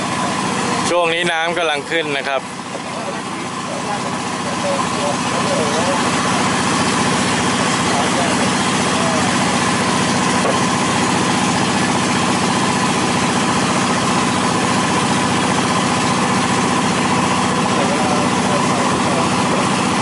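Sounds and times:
boat engine running: 0:00.0 - 0:20.0.

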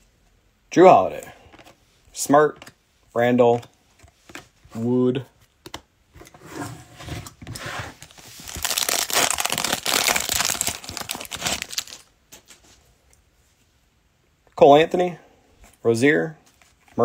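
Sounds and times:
foil pack tearing and crinkling: 0:08.3 - 0:12.1.

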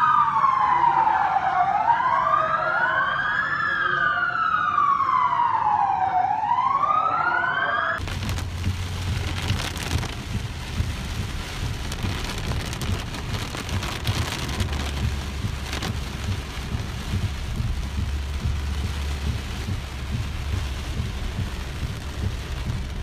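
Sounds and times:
emergency vehicle siren wailing: 0:00.0 - 0:08.0
heavy rain pelting a car: 0:08.0 - 0:23.0
steady low rumble: 0:08.0 - 0:23.0.

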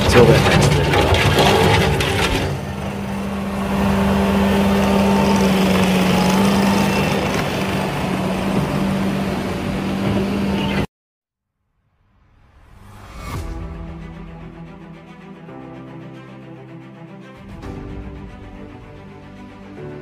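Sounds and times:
small loader engine running: 0:00.0 - 0:10.9.

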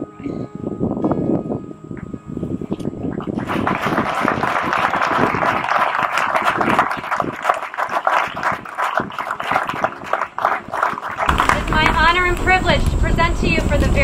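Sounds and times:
guests applauding: 0:03.2 - 0:12.4.

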